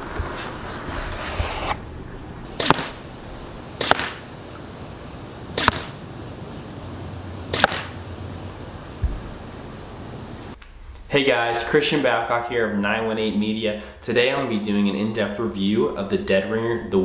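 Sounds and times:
arrows thwacking target: 2.6s - 3.0s, 3.8s - 4.3s, 5.6s - 6.0s, 7.5s - 8.0s.

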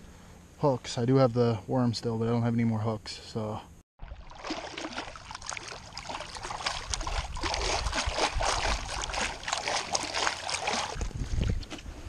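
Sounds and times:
feet splashing in water: 4.0s - 11.9s.

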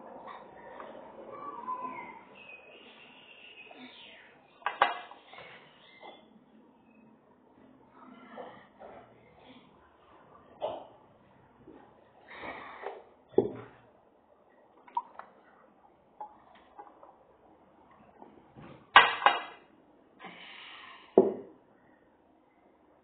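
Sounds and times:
glass knocking on table: 13.4s - 13.7s, 21.2s - 21.5s.

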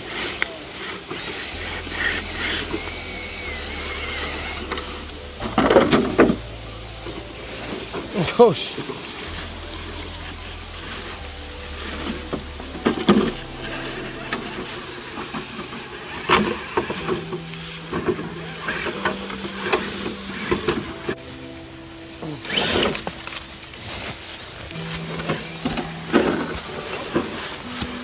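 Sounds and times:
dry leaves crunching: 0.0s - 28.0s
electric motor and gears whining: 0.0s - 28.0s.

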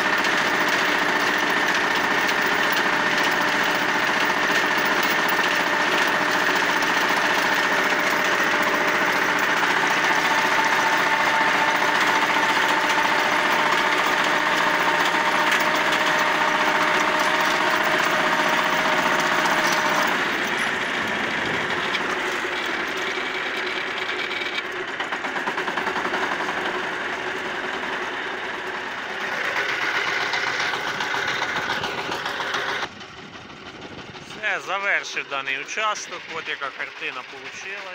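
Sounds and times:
rotary tiller turning soil: 0.0s - 37.9s
tractor diesel engine under load: 0.0s - 37.9s
steady whine: 26.3s - 37.9s.

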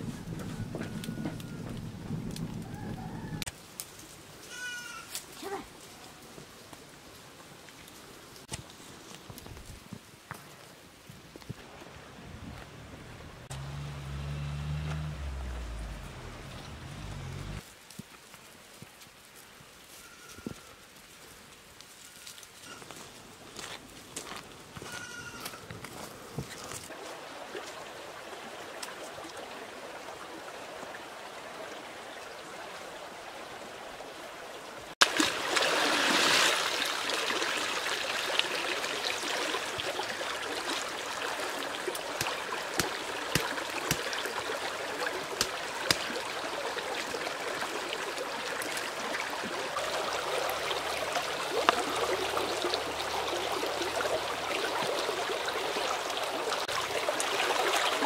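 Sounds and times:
stream trickling and gurgling: 6.4s - 17.9s, 23.2s - 58.0s
small splashes in water: 35.0s - 58.0s.

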